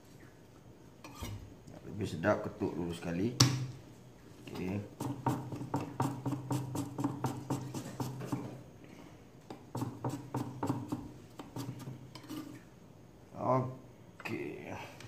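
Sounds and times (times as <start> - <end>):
knife chopping on wooden board: 5.0 - 8.6, 9.8 - 11.9.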